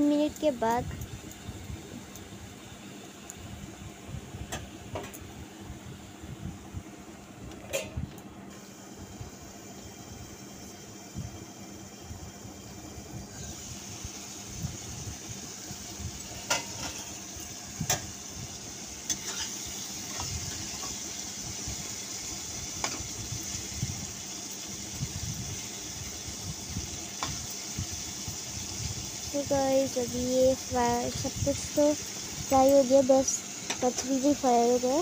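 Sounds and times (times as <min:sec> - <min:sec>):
food sizzling in oil: 0:00.0 - 0:07.8, 0:08.4 - 0:35.0
metal spatula scraping a pan: 0:19.1 - 0:19.6.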